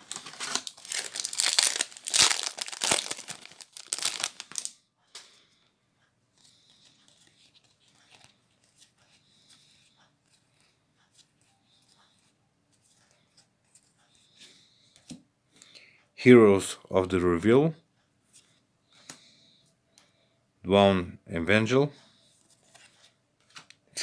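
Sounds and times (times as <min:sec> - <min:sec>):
foil wrapper tearing and crinkling: 0:00.0 - 0:04.7
cards rustling in hand: 0:00.0 - 0:05.3, 0:06.4 - 0:15.2, 0:22.2 - 0:23.8.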